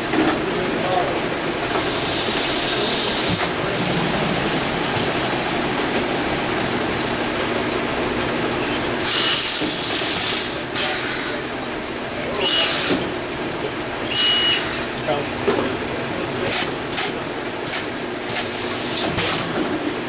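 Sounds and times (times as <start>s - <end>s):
filling machine running: 1.5s - 7.3s, 12.3s - 13.0s.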